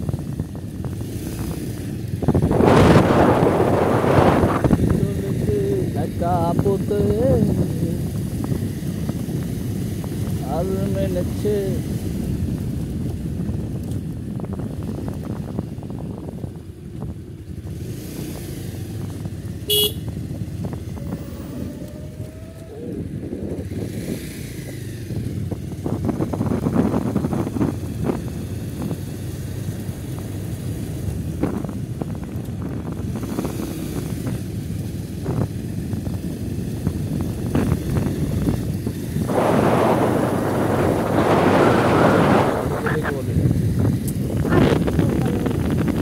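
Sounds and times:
rumble of motor traffic: 0.0 - 46.0
short horn toot: 19.7 - 20.1.

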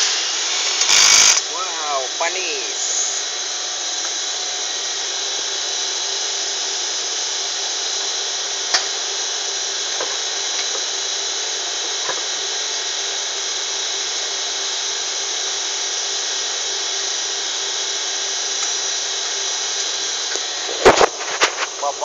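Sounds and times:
factory machinery running: 0.0 - 3.4.

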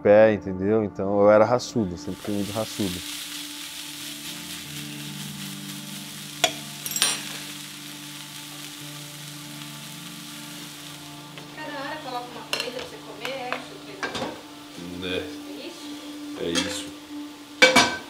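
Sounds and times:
chicken sizzling in a pan: 2.0 - 18.0
dishes clattering: 17.6 - 18.0.

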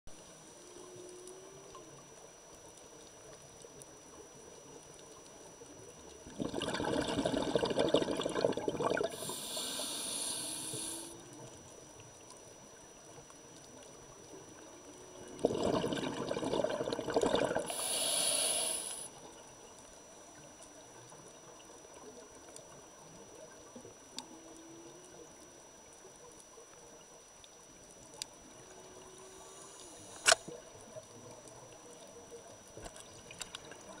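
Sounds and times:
exhaled bubbles: 6.2 - 11.2, 15.1 - 19.1
regulator inhale hiss: 9.0 - 11.2, 17.6 - 19.2, 29.2 - 30.5
whale song: 9.1 - 11.4
sharp click: 30.2 - 30.5.

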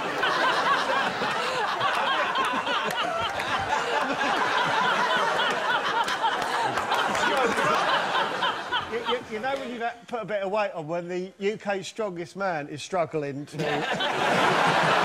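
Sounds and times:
audience laughing: 0.0 - 9.8, 13.6 - 15.0.

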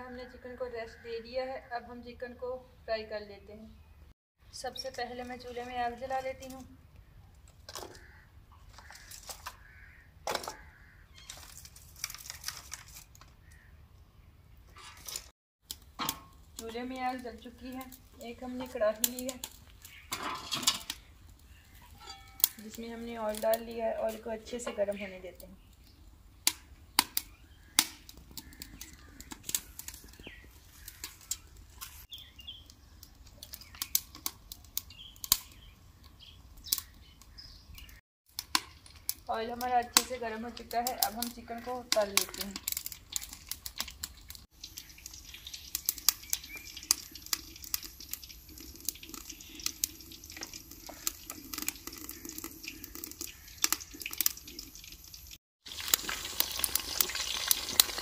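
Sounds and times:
faint birds calling: 6.9 - 11.5, 13.4 - 15.0, 26.8 - 34.1, 44.6 - 47.3, 51.9 - 54.2
firewood sticks clattering: 7.5 - 8.0, 10.2 - 10.6, 14.7 - 25.0, 26.5 - 32.2, 38.3 - 54.5
sharp wood crack: 26.4 - 31.5, 33.3 - 35.7.

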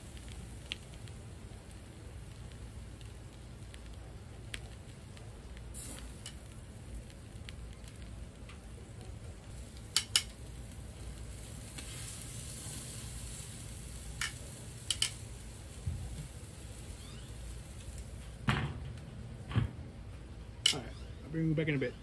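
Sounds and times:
steak sizzling on grill: 0.0 - 18.5
tongs clicking against grate: 9.9 - 10.4, 14.2 - 15.2.

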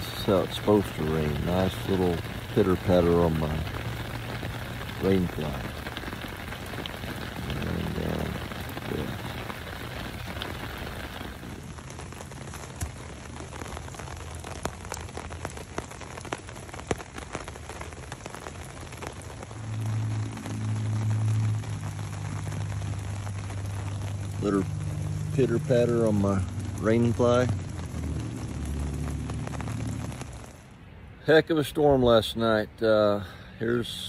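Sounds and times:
rain pattering on a tarp: 0.0 - 34.0
low steady hum: 18.3 - 31.4.

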